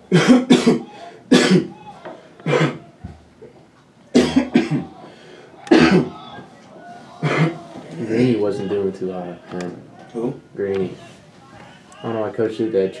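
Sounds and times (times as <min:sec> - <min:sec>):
person coughing: 0:00.1 - 0:01.7, 0:02.4 - 0:02.8, 0:04.2 - 0:04.9, 0:05.7 - 0:06.1.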